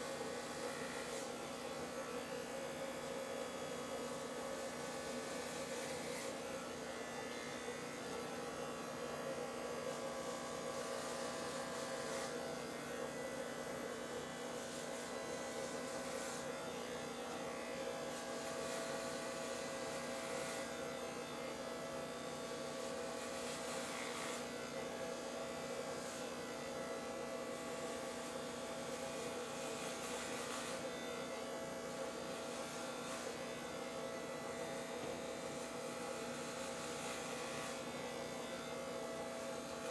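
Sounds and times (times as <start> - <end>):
electric hair clippers buzzing: 0.0 - 39.9.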